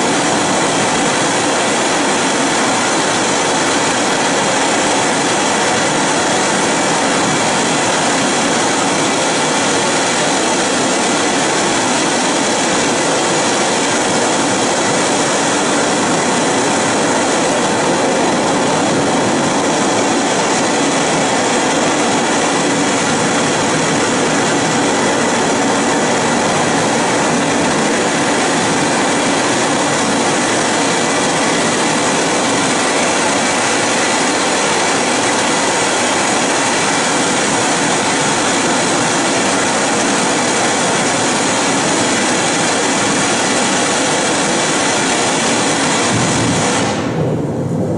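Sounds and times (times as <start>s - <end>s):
loud steady rushing hiss: 0.0s - 47.9s.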